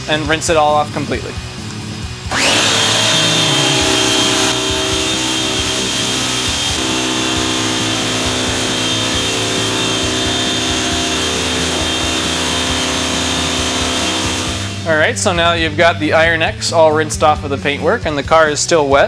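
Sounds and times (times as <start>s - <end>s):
pressure washer spraying water: 2.3s - 14.8s.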